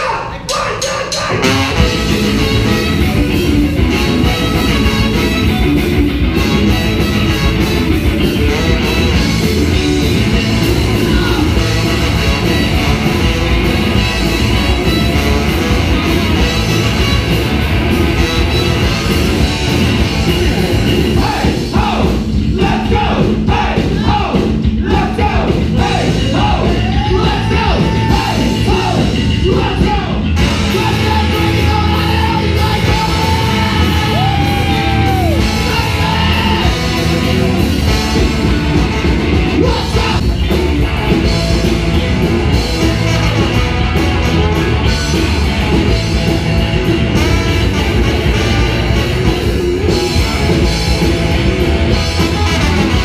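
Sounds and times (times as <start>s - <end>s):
bass guitar: 0.0s - 53.0s
drums: 0.0s - 53.0s
electric guitar: 0.3s - 53.0s
trumpet: 0.5s - 22.0s, 30.4s - 40.2s, 42.5s - 51.2s, 51.9s - 53.0s
trombone: 1.3s - 20.9s, 30.4s - 34.4s, 42.5s - 50.7s, 51.9s - 53.0s.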